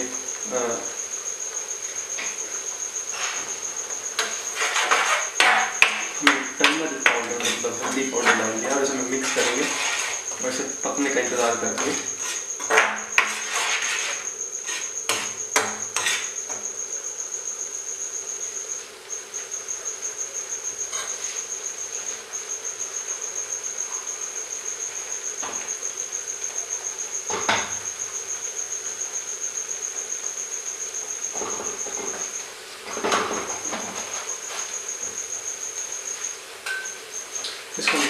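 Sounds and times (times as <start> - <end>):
cricket chirping: 0.0 - 38.0
metal ladle scraping steel pan: 4.2 - 6.1, 7.0 - 10.4, 11.7 - 15.3, 15.9 - 16.3.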